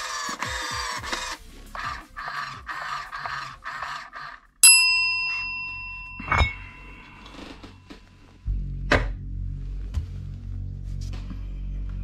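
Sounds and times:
bright bell ding: 4.6 - 7.6.

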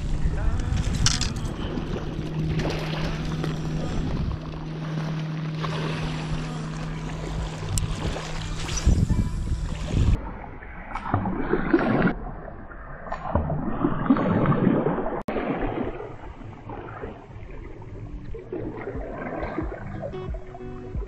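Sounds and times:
wind on microphone: 0.0 - 4.8, 5.8 - 12.1
water lapping at rocky shore: 0.0 - 20.9.

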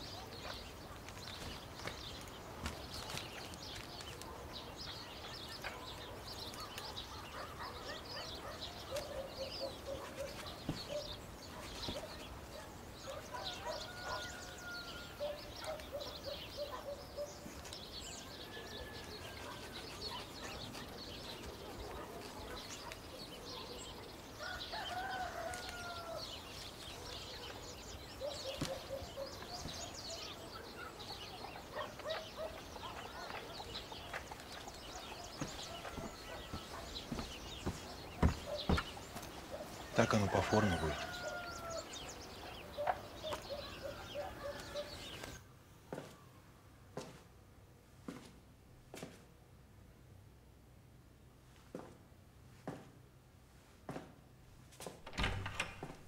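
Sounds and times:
small birds chirping: 0.0 - 47.2.

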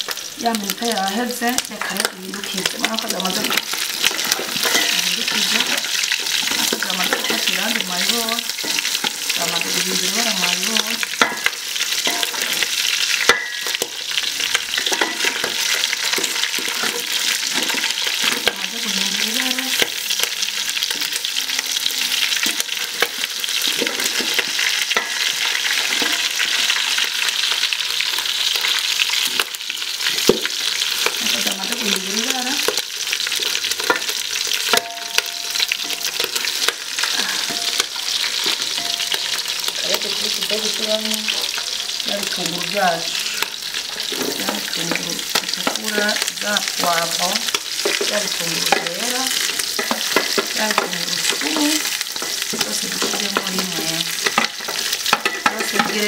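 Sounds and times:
meat sizzling in a pot: 0.0 - 56.0
wooden spoon scraping and knocking: 2.6 - 7.9, 43.0 - 46.8.

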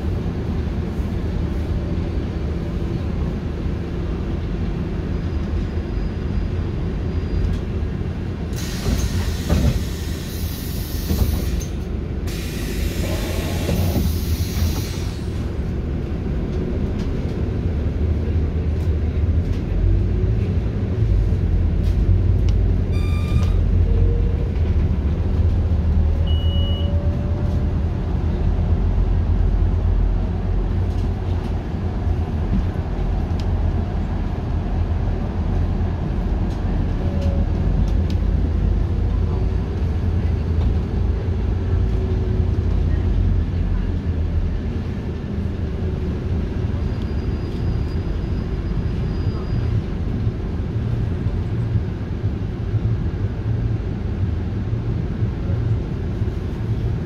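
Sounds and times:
bus diesel engine running: 0.0 - 57.0
bus air brakes hissing: 8.5 - 15.6
short beep: 22.9 - 23.6, 26.2 - 27.0.

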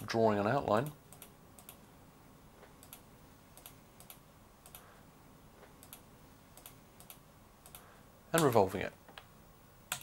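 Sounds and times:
computer mouse clicks: 0.8 - 1.8, 2.6 - 3.0, 3.6 - 4.9, 5.6 - 9.3.

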